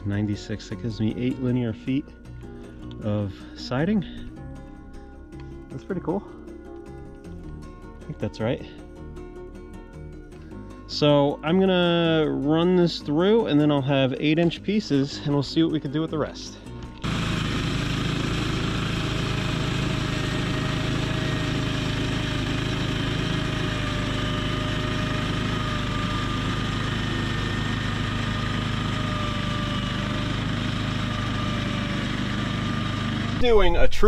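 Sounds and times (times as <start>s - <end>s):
gas engine running under load: 11.8s - 34.0s
band saw blade whine: 14.3s - 34.0s.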